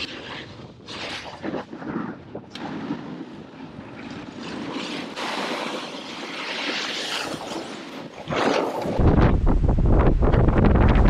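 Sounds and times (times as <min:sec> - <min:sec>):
wind on microphone: 0:00.0 - 0:11.0
skis scraping on snow: 0:02.8 - 0:09.0.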